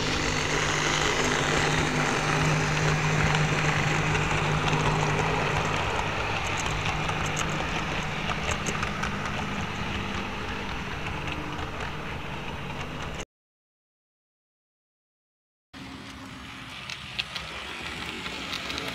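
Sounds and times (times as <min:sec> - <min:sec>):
low motor hum: 0:00.0 - 0:13.2
model train rumbling on track: 0:00.0 - 0:13.2, 0:15.8 - 0:18.9.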